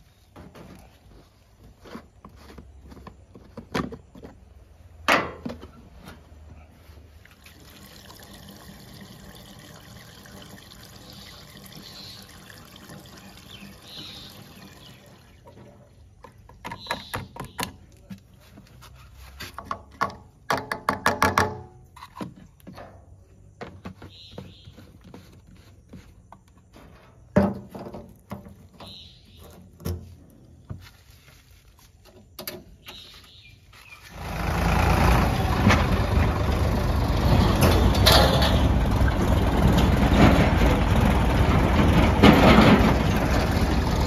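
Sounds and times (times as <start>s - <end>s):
fuel pouring through funnel: 7.2s - 15.7s.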